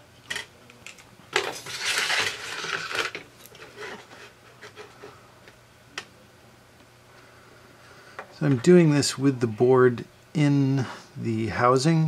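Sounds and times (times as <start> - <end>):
rubbing and scraping: 1.5 - 5.2.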